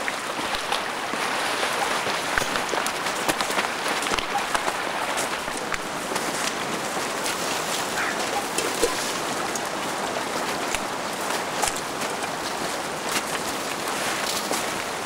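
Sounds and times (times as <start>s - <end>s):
creek rushing: 0.0s - 15.0s.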